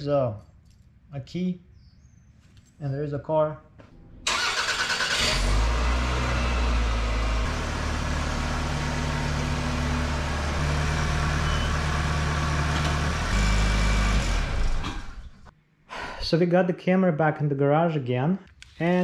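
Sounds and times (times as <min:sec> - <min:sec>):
car engine running at low speed: 0:05.2 - 0:15.4.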